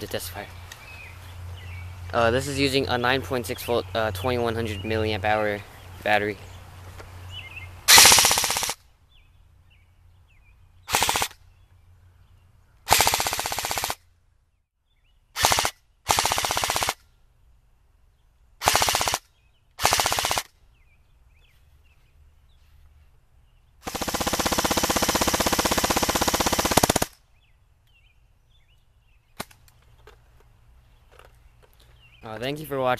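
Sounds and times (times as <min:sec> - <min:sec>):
airsoft gun firing full-auto: 0:07.9 - 0:08.8, 0:10.9 - 0:11.4, 0:12.9 - 0:14.0, 0:15.4 - 0:17.0, 0:18.6 - 0:20.5, 0:23.8 - 0:27.2.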